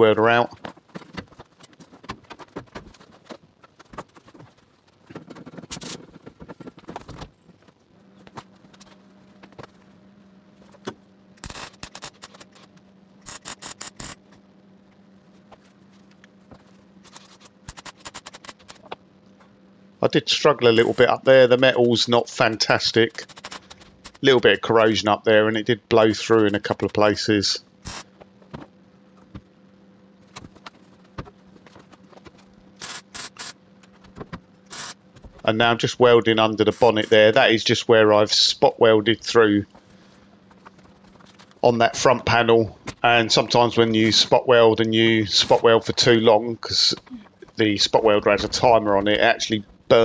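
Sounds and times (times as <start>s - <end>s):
steady low hum: 0.0s - 50.0s
welder crackling: 11.4s - 14.3s, 20.7s - 28.2s, 32.8s - 33.6s, 34.7s - 35.0s
welder crackling hiss: 13.2s - 14.2s, 27.8s - 28.1s, 32.8s - 33.6s, 34.7s - 35.0s.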